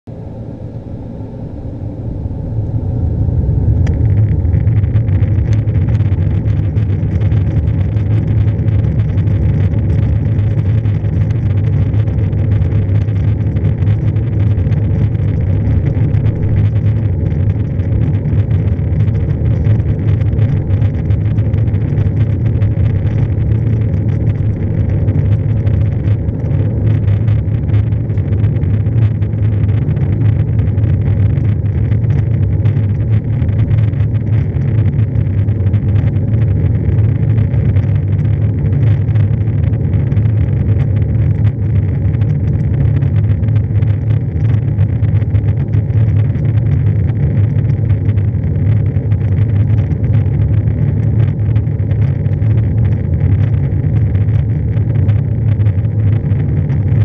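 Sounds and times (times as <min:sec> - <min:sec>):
jet engines roaring: 0:00.1 - 0:08.4.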